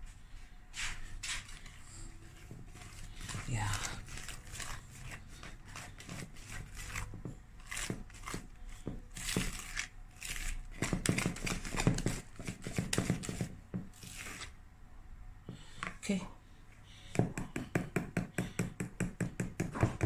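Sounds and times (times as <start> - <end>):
batter squelching in bowl: 1.1 - 14.6.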